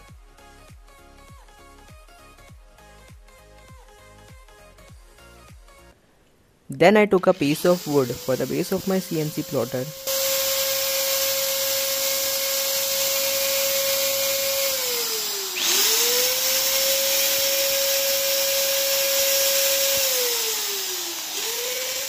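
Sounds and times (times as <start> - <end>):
electric drill whining: 7.2 - 22.0.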